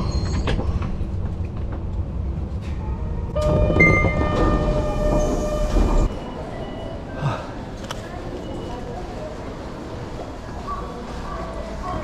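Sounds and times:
subway train rumble: 0:00.0 - 0:12.0
station ambience: 0:02.0 - 0:12.0.

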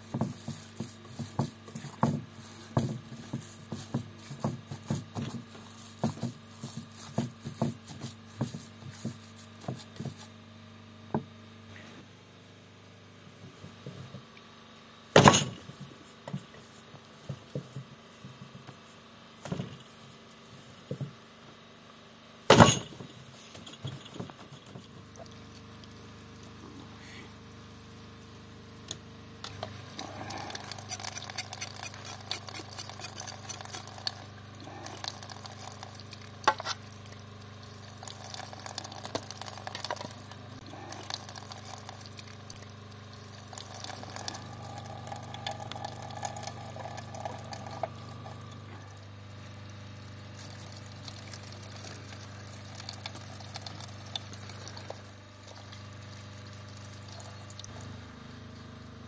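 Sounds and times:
steady low hum: 0:00.0 - 0:59.0
liquid sounds: 0:29.7 - 0:58.0
utensil scraping a pan: 0:30.3 - 0:34.2.

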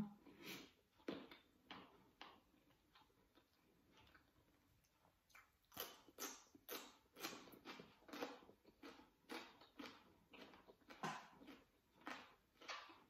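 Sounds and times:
vegetable stick being chewed: 0:00.4 - 0:13.0.

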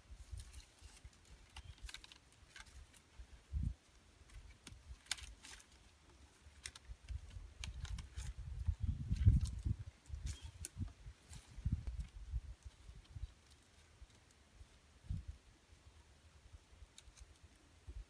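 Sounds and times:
wooden sticks clicking and crackling: 0:00.2 - 0:03.2, 0:03.8 - 0:14.4.

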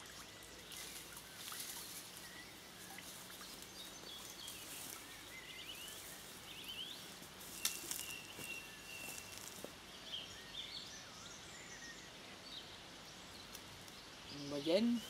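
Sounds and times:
water dripping off a net: 0:00.0 - 0:02.2.

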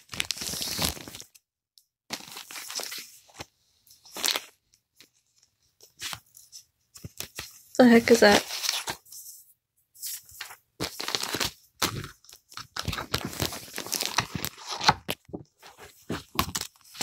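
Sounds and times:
paper rustling: 0:02.1 - 0:09.3, 0:10.0 - 0:17.0
plastic packaging crinkling: 0:10.8 - 0:15.2.

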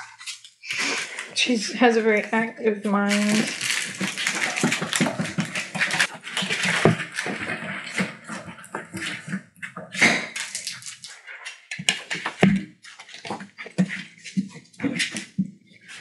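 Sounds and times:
paws scratching on hard floor: 0:00.0 - 0:16.0.

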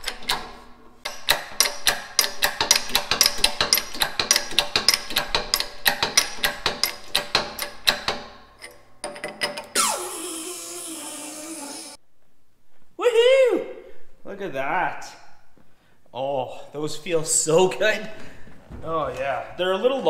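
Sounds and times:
rapid metallic clicking: 0:01.1 - 0:08.2.

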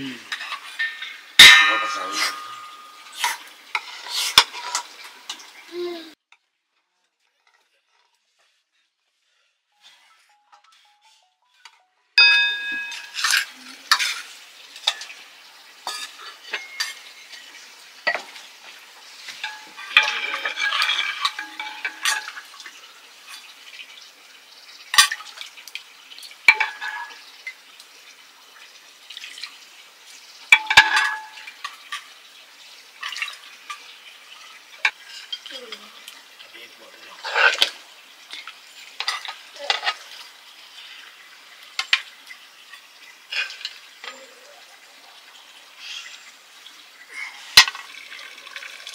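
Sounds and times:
metal ladle clinking against pot: 0:00.3 - 0:04.8, 0:12.2 - 0:14.2, 0:19.4 - 0:22.5, 0:26.5 - 0:27.2, 0:30.6 - 0:31.6.

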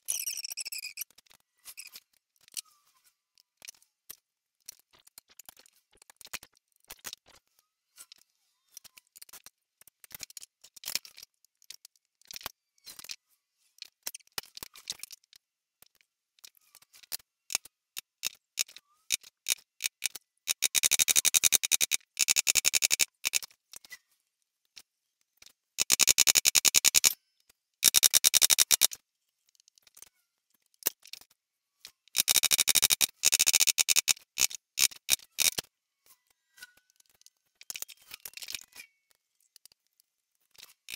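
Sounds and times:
tools clicking: 0:17.0 - 0:23.5, 0:25.8 - 0:27.2, 0:27.8 - 0:30.1, 0:32.1 - 0:35.7.

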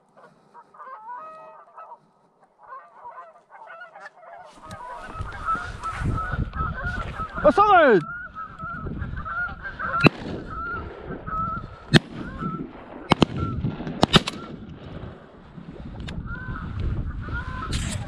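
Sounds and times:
geese honking: 0:00.0 - 0:12.6, 0:16.3 - 0:17.7
shotgun shots: 0:11.9 - 0:14.7.

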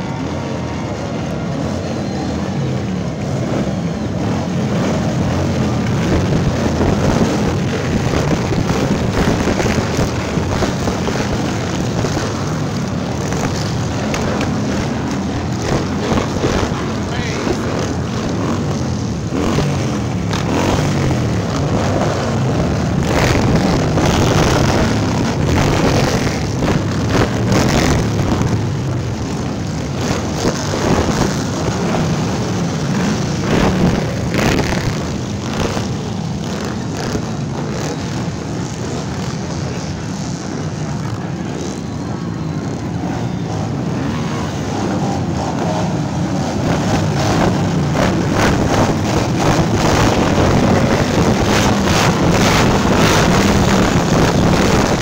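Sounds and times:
motorcycles riding past: 0:00.0 - 0:55.0.

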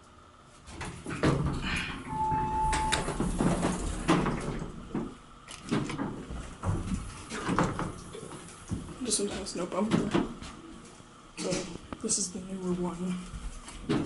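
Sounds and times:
elevator door sliding open: 0:00.8 - 0:06.2
short electronic beep: 0:02.1 - 0:03.0.

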